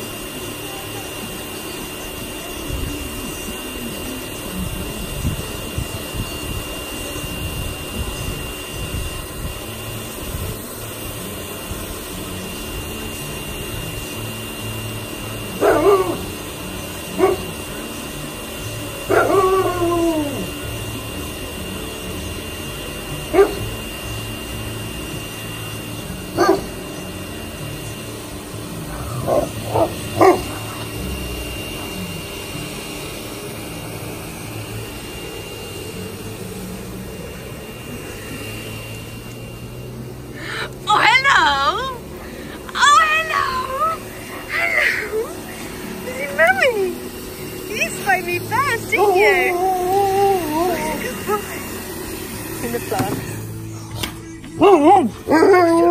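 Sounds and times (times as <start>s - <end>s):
dogs barking deeply: 15.6s - 16.5s, 17.1s - 17.6s, 19.0s - 20.6s, 23.2s - 23.8s, 26.3s - 26.8s, 28.8s - 32.0s, 54.5s - 55.9s.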